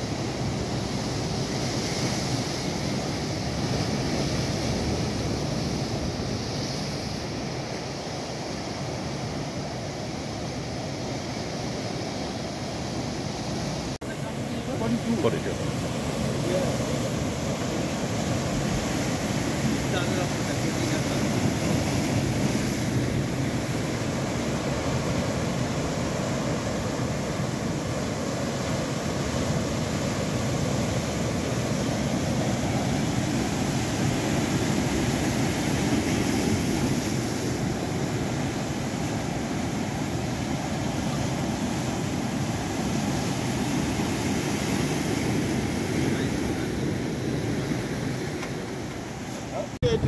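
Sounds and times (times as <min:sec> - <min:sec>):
surf breaking on shore: 0:00.0 - 0:50.0
wind on microphone: 0:14.8 - 0:50.0.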